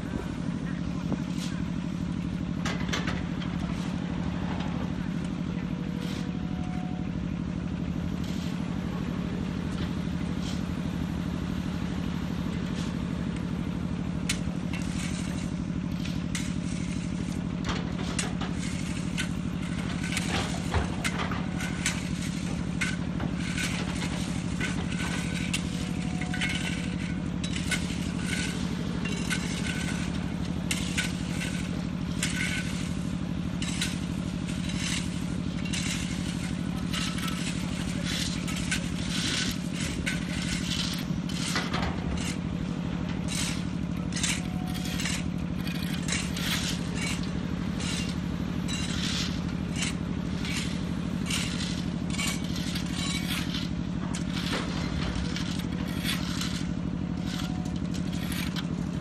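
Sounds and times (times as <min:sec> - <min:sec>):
diesel engine running: 0:00.0 - 0:59.0
bucket scraping soil: 0:06.0 - 0:06.4, 0:08.2 - 0:08.7, 0:10.3 - 0:10.7, 0:14.4 - 0:59.0
falling soil clatter: 0:14.4 - 0:59.0.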